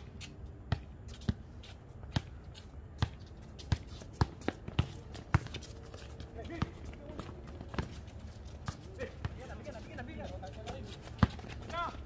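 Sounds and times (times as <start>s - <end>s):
basketball bouncing on hard court: 3.0s - 5.7s, 11.0s - 11.9s.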